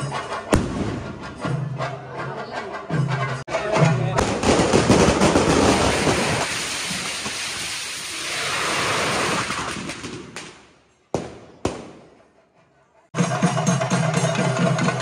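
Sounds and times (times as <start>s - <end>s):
sharp firework bangs: 0.6s - 1.4s
fireworks crackling: 4.2s - 12.1s.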